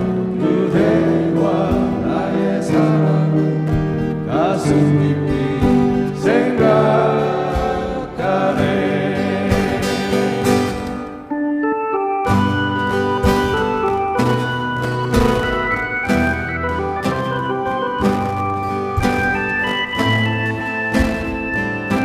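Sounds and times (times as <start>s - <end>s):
acoustic guitars: 0.0s - 11.4s, 12.2s - 22.0s
electric keyboard: 0.0s - 22.0s
gliding melody line: 11.2s - 22.0s.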